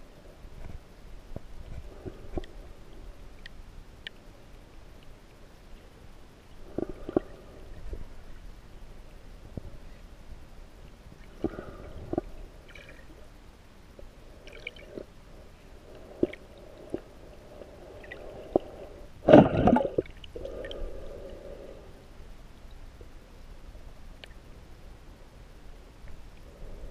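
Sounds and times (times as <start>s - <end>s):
muffled underwater sloshing: 14.0s - 21.6s.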